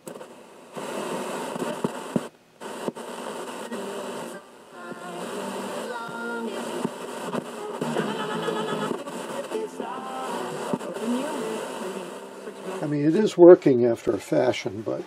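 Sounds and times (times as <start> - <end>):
radio static hiss: 0.0 - 15.0
faint radio voice or music: 3.4 - 15.0.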